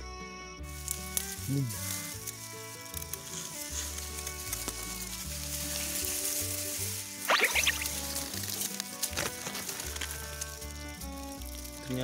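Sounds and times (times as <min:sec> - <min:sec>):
background music with bass line: 0:00.0 - 0:08.4
grass rustling and crackling: 0:00.6 - 0:12.0.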